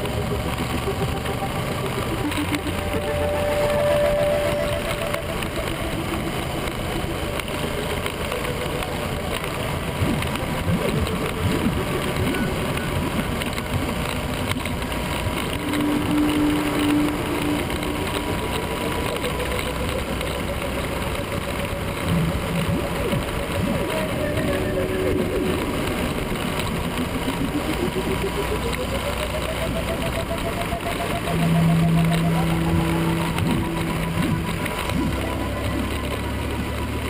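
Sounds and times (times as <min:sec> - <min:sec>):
motorcycle engine running: 0:00.0 - 0:37.0
wind and road noise: 0:00.0 - 0:37.0.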